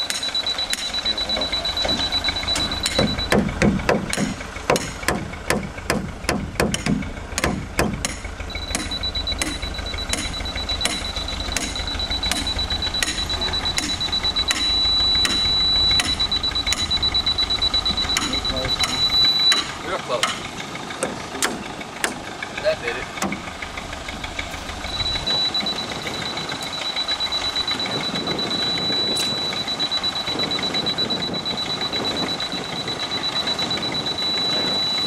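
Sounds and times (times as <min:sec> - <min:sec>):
laser receiver beeping high tone: 0:00.0 - 0:03.5, 0:08.5 - 0:20.0, 0:24.8 - 0:35.0.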